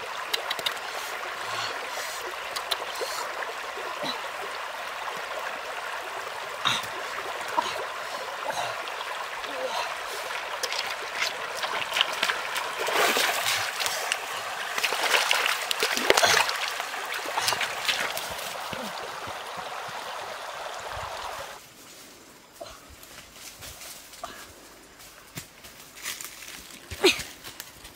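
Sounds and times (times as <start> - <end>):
splashing in water: 0.0 - 20.3
stream water running over stones: 0.0 - 21.6.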